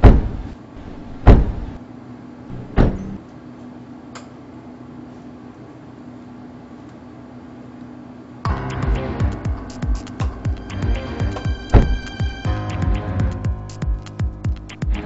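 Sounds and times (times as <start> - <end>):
heavy thuds: 0.0 - 1.8, 2.5 - 3.2, 9.4 - 15.0
steady low hum: 0.0 - 15.0.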